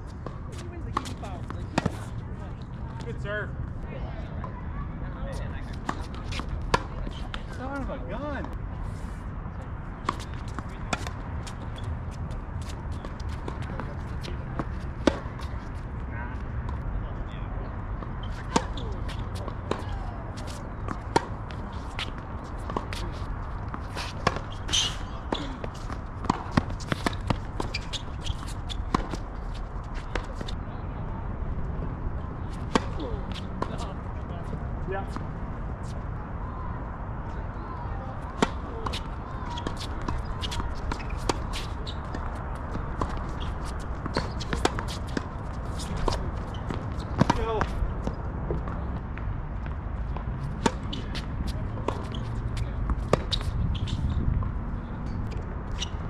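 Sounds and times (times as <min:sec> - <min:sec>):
tennis ball strikes and bounces: 0:05.7 - 0:07.6, 0:10.0 - 0:11.8, 0:12.6 - 0:15.7, 0:18.0 - 0:30.6, 0:32.4 - 0:33.8, 0:38.3 - 0:48.8, 0:49.6 - 0:56.0
wind on microphone: 0:53.3 - 0:55.2.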